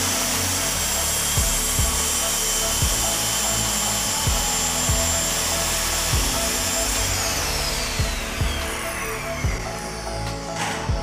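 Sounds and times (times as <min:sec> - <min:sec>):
circular saw cutting wood: 0:00.0 - 0:11.0.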